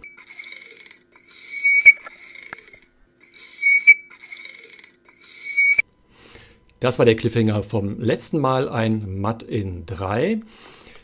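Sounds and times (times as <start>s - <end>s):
high whistling tone: 3.4s - 4.1s.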